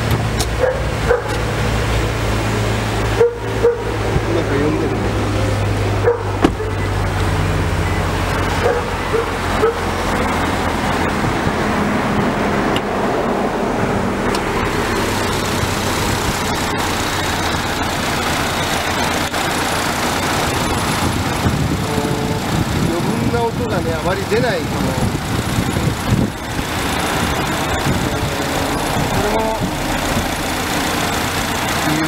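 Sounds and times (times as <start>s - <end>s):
road traffic noise: 0.0s - 32.0s.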